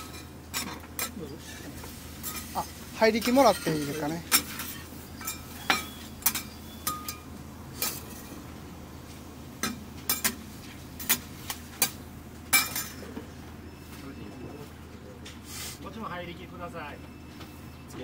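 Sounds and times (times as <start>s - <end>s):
metal utensils clinking on pans: 0.0s - 1.6s, 2.2s - 8.4s, 9.6s - 10.4s, 11.0s - 13.2s
low background hum: 0.0s - 18.0s.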